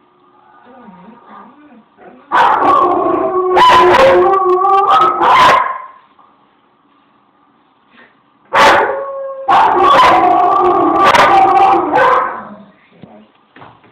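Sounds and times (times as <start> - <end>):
dog howling: 2.3 - 5.6, 8.6 - 12.6
dog howling on television: 2.3 - 5.9, 8.6 - 12.6.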